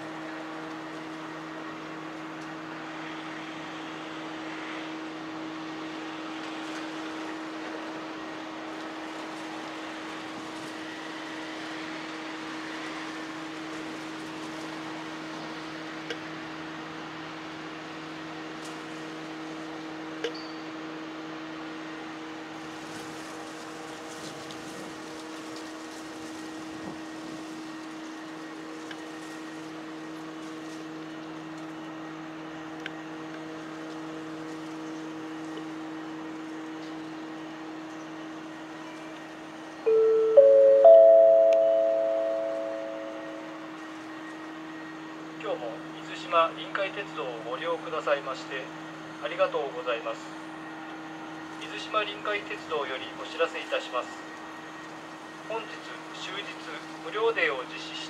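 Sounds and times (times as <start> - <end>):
low mechanical drone: 0.0 - 47.1
steady machine hum: 27.1 - 46.1.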